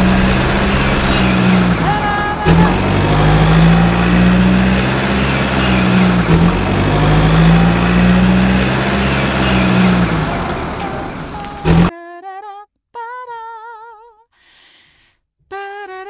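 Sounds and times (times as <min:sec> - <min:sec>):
heavy vehicle engine humming: 0:00.0 - 0:11.9.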